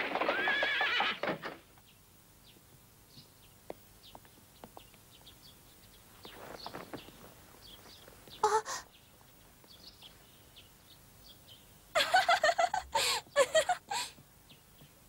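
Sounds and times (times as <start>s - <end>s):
faint birds chirping: 1.6s - 15.0s
girl giggling: 8.4s - 8.8s, 12.0s - 14.2s.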